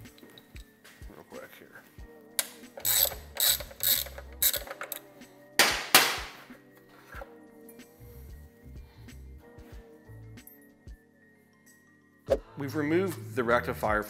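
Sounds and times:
ratchet wrench clicking: 2.4 - 5.1
metal scraping rattles: 2.8 - 5.0.

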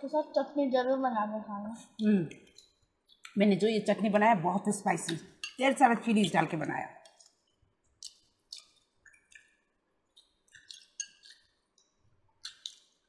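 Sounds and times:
chewing and lip-smacking: 7.1 - 13.0.

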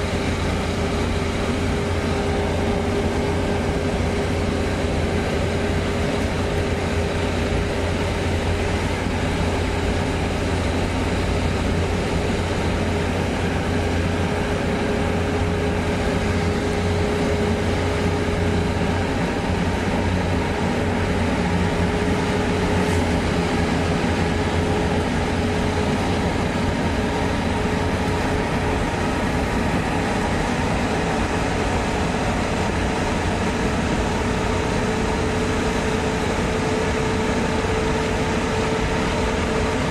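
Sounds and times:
car driving through a tunnel: 0.0 - 39.9.

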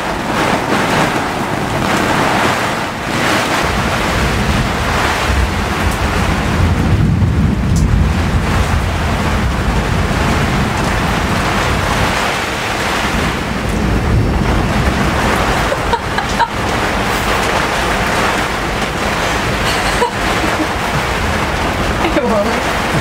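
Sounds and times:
low wind buffeting: 0.0 - 23.0
wind and heavy rain: 0.0 - 23.0.

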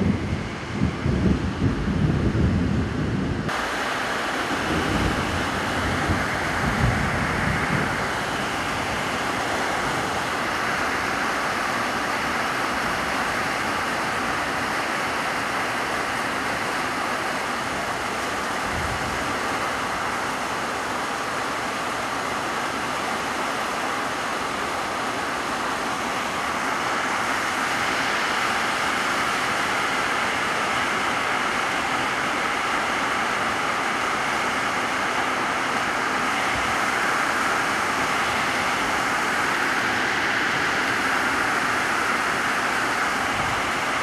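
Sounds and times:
wind buffeting microphone: 0.0 - 3.6, 4.4 - 10.8
heavy rain on metal roof: 0.0 - 44.0.

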